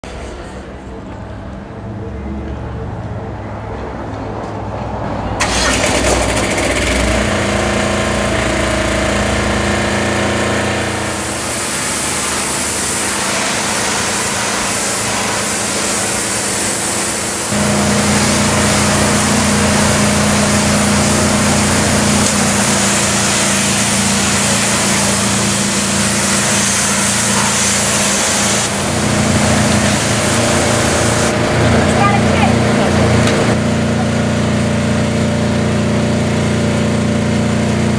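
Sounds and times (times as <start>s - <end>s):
water jet hissing on brick: 5.4s - 31.4s
pressure washer engine running: 5.4s - 37.9s.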